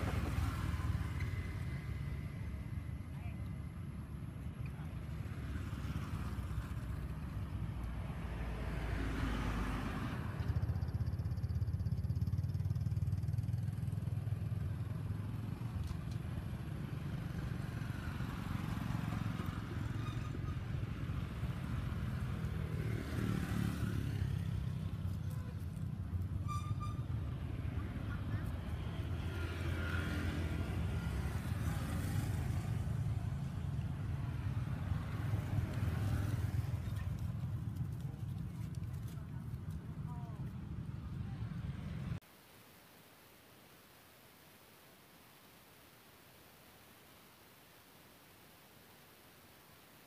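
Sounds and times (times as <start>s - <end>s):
low outdoor rumble: 24.1s - 42.2s.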